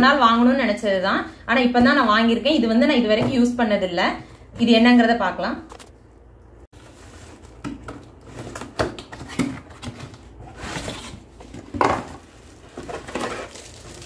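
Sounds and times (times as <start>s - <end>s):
rustling handling noise: 6.7s - 14.0s.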